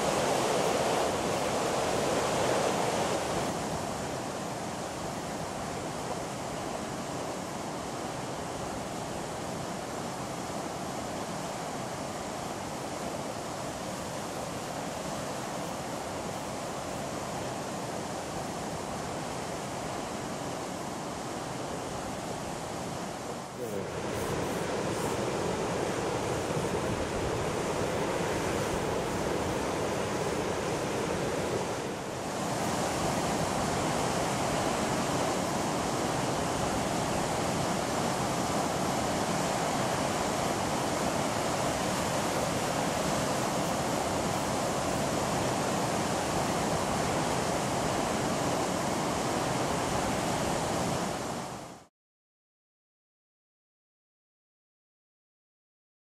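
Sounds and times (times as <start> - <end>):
waterfall and stream rushing: 0.0 - 51.9.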